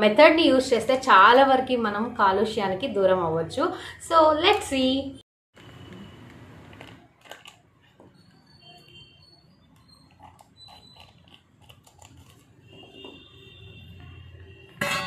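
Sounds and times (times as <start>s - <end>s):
plastic crinkling: 6.7s - 8.1s, 10.1s - 12.7s
scissors snipping plastic: 6.8s - 7.6s, 10.2s - 12.5s.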